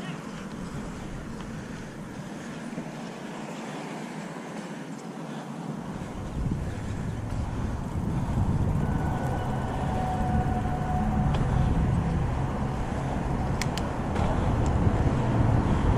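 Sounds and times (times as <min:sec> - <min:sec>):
bike tyres rolling on concrete: 0:00.0 - 0:15.9
wind rushing over microphone: 0:05.7 - 0:15.9
sharp clicks: 0:13.5 - 0:13.9.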